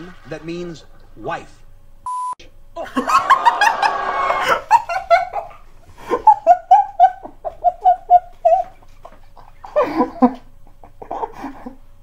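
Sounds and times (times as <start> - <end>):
people laughing: 2.8 - 11.8.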